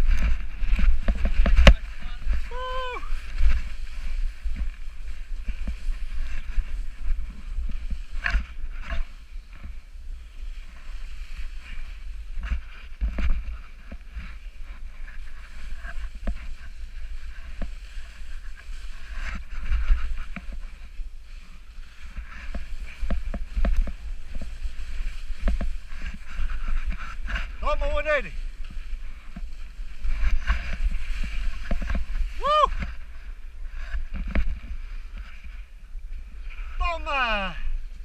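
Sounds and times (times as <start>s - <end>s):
wind buffeting microphone: 0.0s - 36.8s
snowboard scraping on snow: 0.0s - 38.0s.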